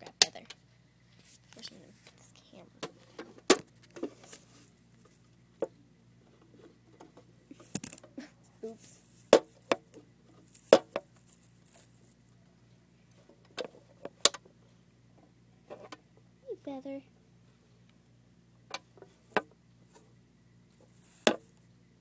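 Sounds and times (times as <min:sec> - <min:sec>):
soft handling rustle: 0:01.1 - 0:14.1.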